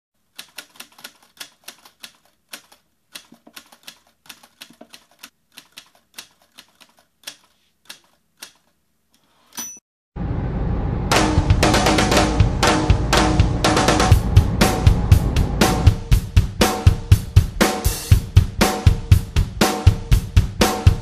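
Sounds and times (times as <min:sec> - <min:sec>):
typewriter bell ding: 0:09.5 - 0:09.8
music with drums: 0:11.1 - 0:21.0.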